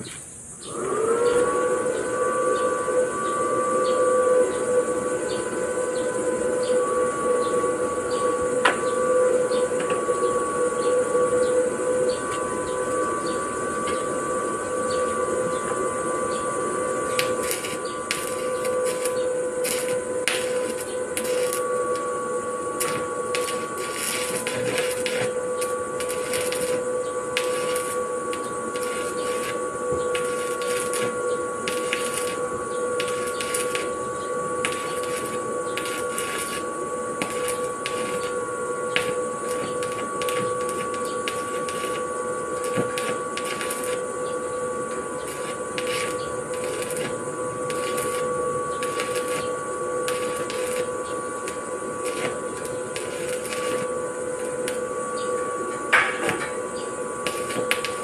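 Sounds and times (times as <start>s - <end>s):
steady welder hum: 0.0s - 58.0s
welding arc crackling: 4.2s - 58.0s.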